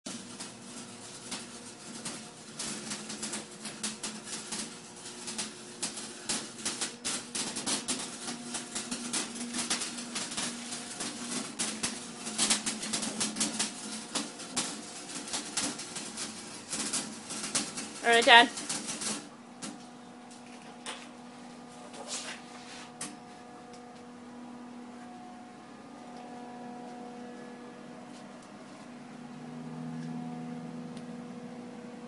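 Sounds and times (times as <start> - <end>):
arc welding crackling: 0.1 - 25.2.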